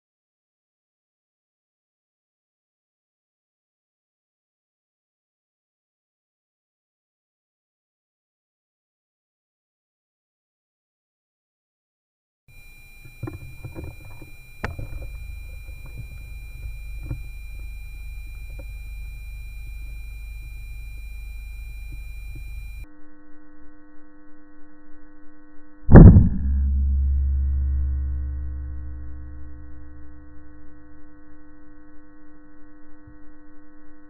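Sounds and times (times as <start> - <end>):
high whine: 12.5 - 22.9, 25.9 - 33.5
low hum: 12.5 - 22.9, 25.9 - 33.5
electronic drone: 12.6 - 22.8, 25.9 - 33.1
low rumble: 25.9 - 30.9.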